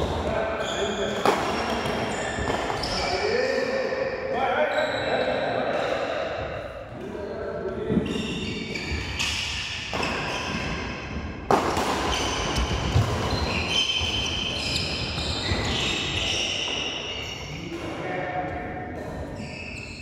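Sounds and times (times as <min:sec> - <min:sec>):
shoes squeaking on court floor: 0:00.0 - 0:03.6, 0:07.2 - 0:17.9, 0:18.5 - 0:20.0.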